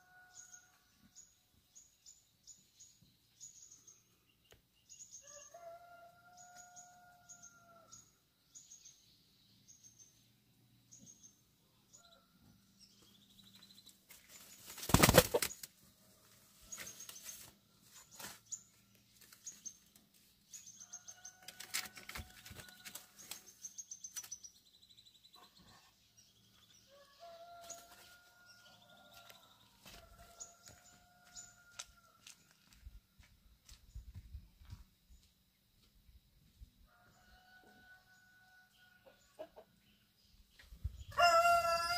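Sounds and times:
long steady bird calls: 0:00.0 - 0:32.8
loud bird flurry: 0:14.4 - 0:15.7.

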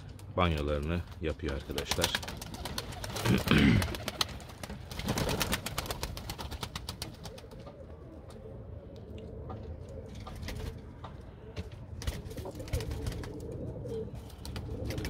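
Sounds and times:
wings flapping: 0:01.1 - 0:08.0, 0:10.2 - 0:11.0, 0:12.0 - 0:13.6, 0:14.2 - 0:15.0
pigeons cooing: 0:01.8 - 0:15.0.

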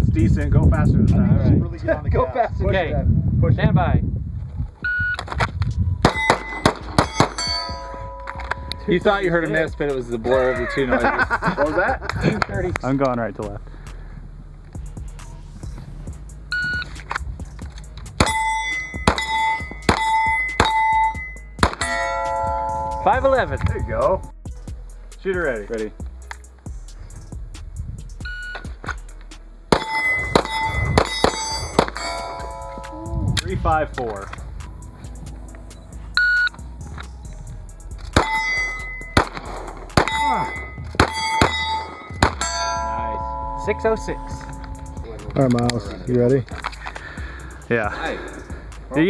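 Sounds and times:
handgun shots: 0:06.0 - 0:07.5, 0:19.0 - 0:20.9, 0:21.6 - 0:22.0, 0:29.7 - 0:32.1, 0:39.2 - 0:42.5
steel plate ringing clang: 0:06.0 - 0:09.6, 0:18.2 - 0:24.1, 0:29.7 - 0:33.0, 0:38.2 - 0:45.0
shot timer beep: 0:28.2 - 0:28.6, 0:36.2 - 0:36.6.

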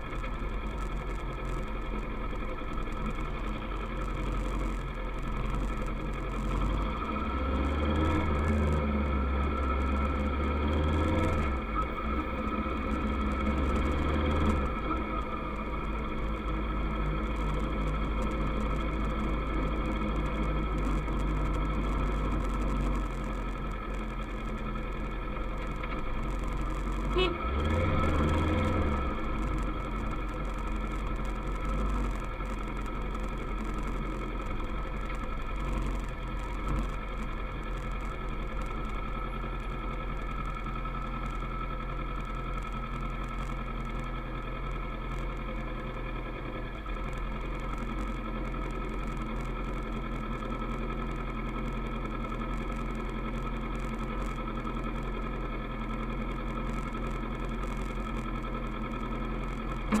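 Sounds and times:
motorcycle engine running: 0:00.0 - 1:00.0.

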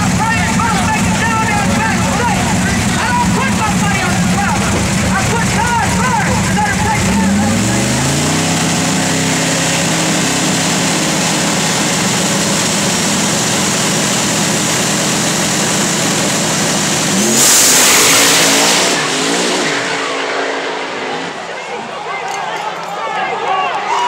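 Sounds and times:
drag racing car engines: 0:00.0 - 0:24.0.

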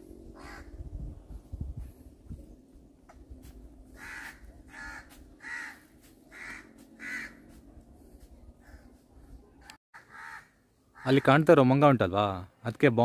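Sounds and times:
crow cawing: 0:00.4 - 0:00.8, 0:03.9 - 0:07.6, 0:09.9 - 0:11.4.

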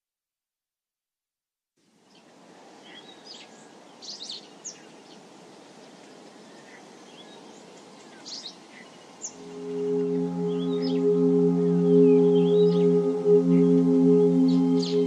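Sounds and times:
low background rush: 0:09.4 - 0:15.0.

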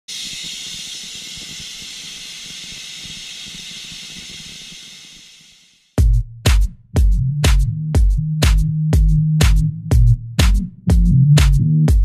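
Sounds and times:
air hissing from tyre valve: 0:00.0 - 0:06.0
music with kick drum beats: 0:05.9 - 0:12.0.

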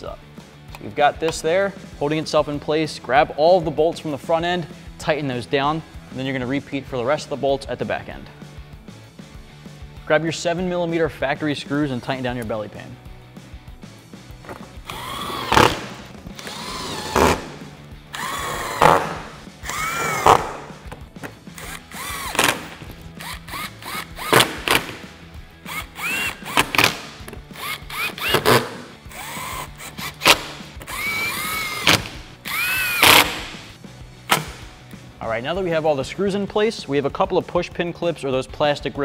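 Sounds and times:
cordless drill whining: 0:14.5 - 0:25.0, 0:25.6 - 0:33.7.

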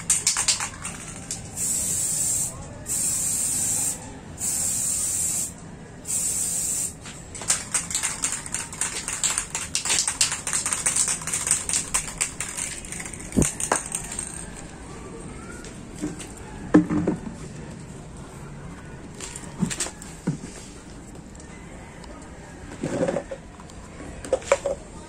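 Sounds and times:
rapid clicking and rattling: 0:00.0 - 0:01.6, 0:07.3 - 0:14.6
spray can hissing: 0:00.0 - 0:14.4.

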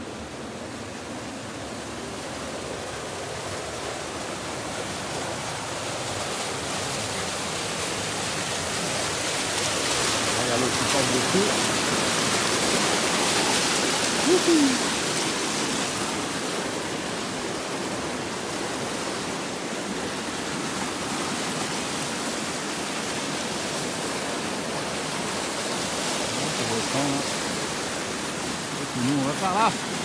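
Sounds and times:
water rushing: 0:00.0 - 0:30.0
brief voice-like sound: 0:14.2 - 0:14.9.

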